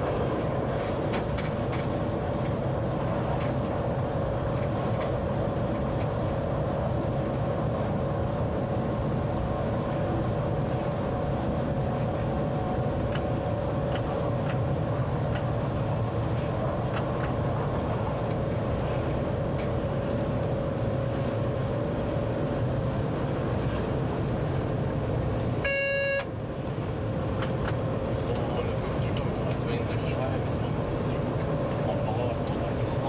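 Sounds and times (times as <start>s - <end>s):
train rumble and hum: 0.0s - 33.0s
short electronic beep: 25.6s - 26.3s.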